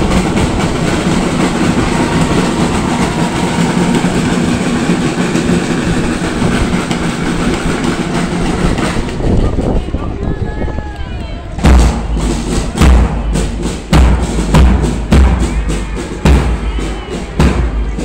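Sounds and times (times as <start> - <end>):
snare drums: 0.0 - 9.7, 11.6 - 18.0
bass drum: 11.6 - 18.0.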